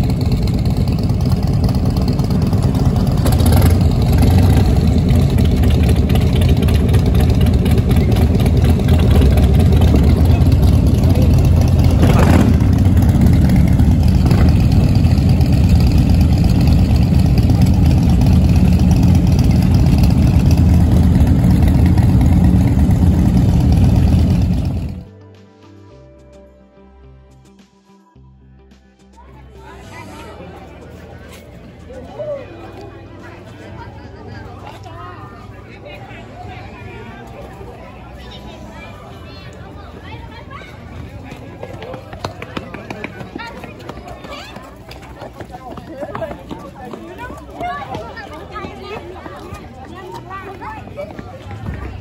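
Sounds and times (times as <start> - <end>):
motorcycle engines idling: 0.0 - 25.1.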